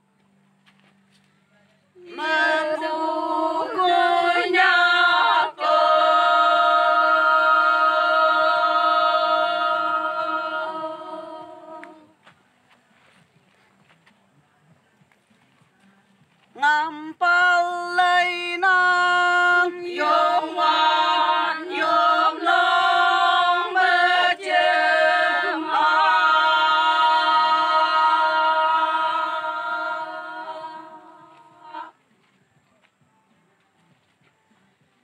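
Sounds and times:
women singing in unison: 0:02.0 - 0:12.1, 0:16.6 - 0:32.0.

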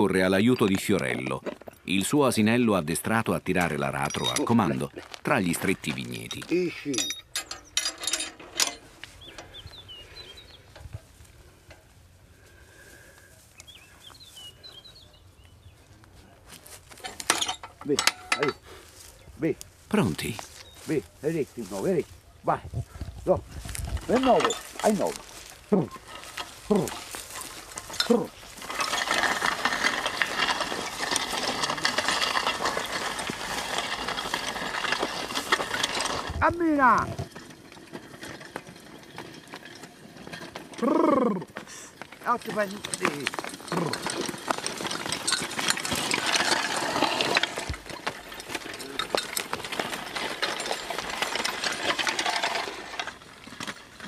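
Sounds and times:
plough scraping through stony soil: 0:00.0 - 0:11.6, 0:16.5 - 0:22.0, 0:22.7 - 0:54.0
harness chains clinking: 0:03.5 - 0:09.6, 0:17.0 - 0:18.7, 0:23.8 - 0:54.0
songbird chirping: 0:09.0 - 0:10.9, 0:13.5 - 0:16.2, 0:18.9 - 0:22.4
person calling out: 0:40.8 - 0:41.5.

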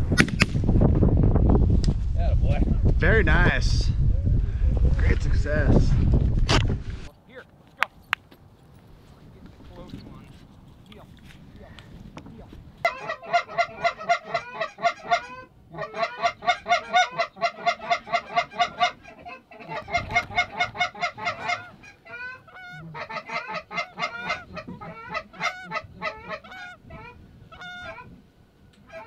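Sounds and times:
goose honks and clucks: 0:12.8 - 0:28.2, 0:28.8 - 0:29.0.

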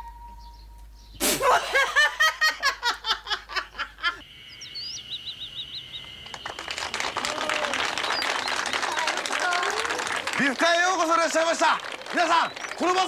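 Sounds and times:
birds chirping: 0:00.0 - 0:13.0
woman laughing hard: 0:01.2 - 0:04.2.

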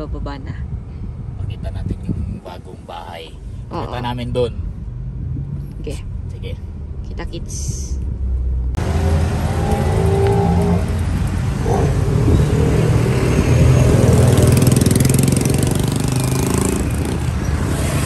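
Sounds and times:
vehicle engines accelerating: 0:03.8 - 0:18.0
motorcycles passing: 0:08.8 - 0:18.0.

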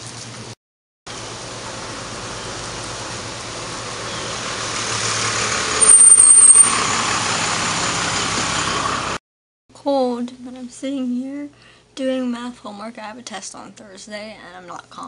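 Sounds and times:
road vehicle passing: 0:01.2 - 0:09.2
shrill brake squeal: 0:05.8 - 0:07.1.

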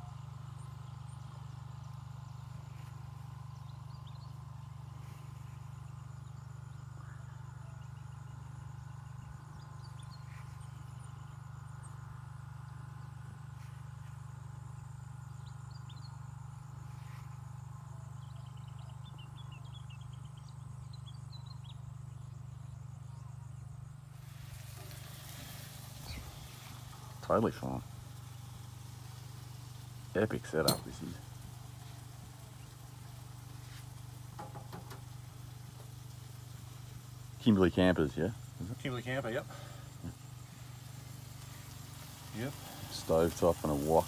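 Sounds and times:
birds chirping: 0:00.0 - 0:44.0
insect drone: 0:00.0 - 0:44.0
hiss: 0:24.1 - 0:44.0.

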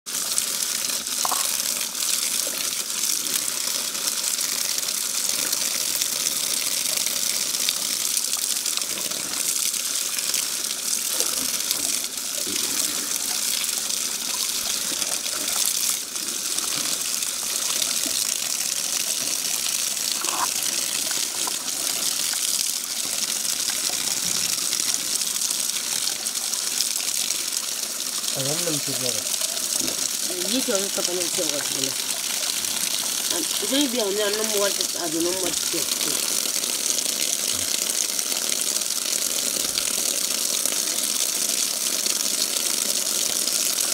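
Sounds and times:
tap water splashing on greens: 0:01.2 - 0:01.6.

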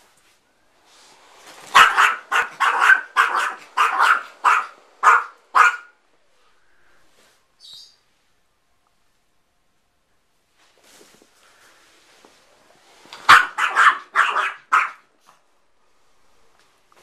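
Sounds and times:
small dog barking: 0:01.7 - 0:06.0, 0:13.2 - 0:15.1.

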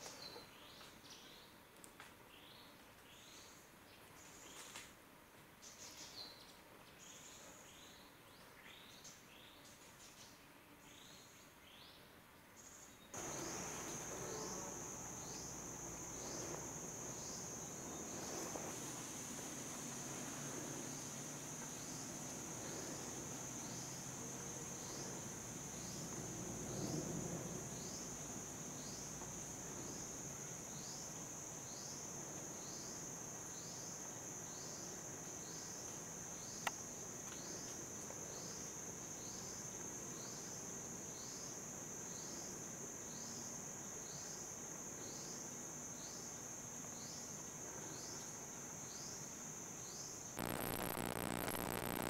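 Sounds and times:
electronic hiss and hum: 0:13.2 - 0:30.0, 0:50.3 - 0:52.0
insects trilling: 0:13.2 - 0:52.0.

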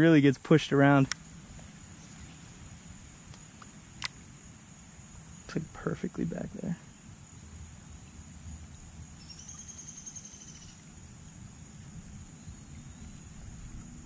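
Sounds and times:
insects chirring: 0:00.0 - 0:14.0
pulsed insect trill: 0:00.0 - 0:14.0
wind rumble on microphone: 0:11.3 - 0:14.0.

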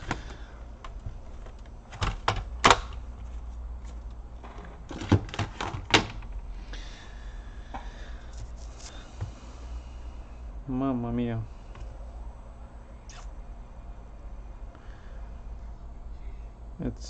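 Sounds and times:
plastic laptop casing clicking: 0:00.9 - 0:03.0.

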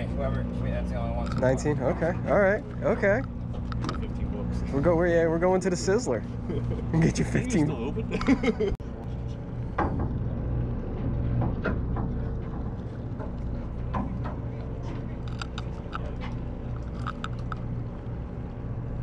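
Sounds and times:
boat engine humming: 0:00.0 - 0:19.0.

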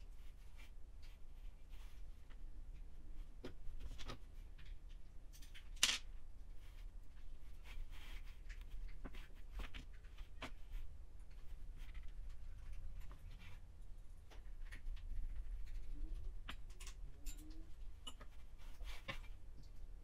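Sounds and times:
hands handling wiring and connectors: 0:00.1 - 0:20.0.

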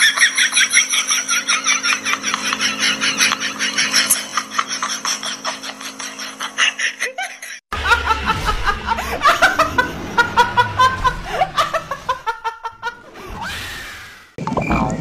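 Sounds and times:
young woman laughing: 0:00.0 - 0:13.0.

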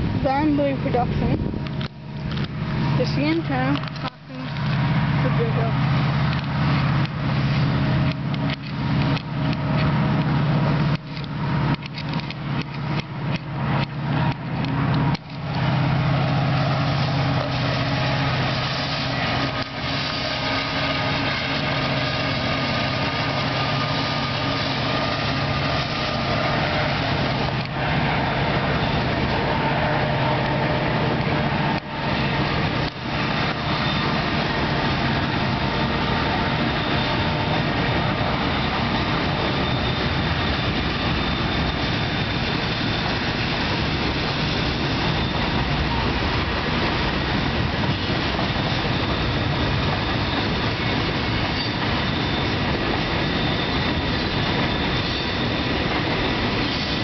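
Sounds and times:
locomotive engine drone: 0:00.0 - 0:57.0
train cars rumbling over bridge: 0:00.0 - 0:57.0.

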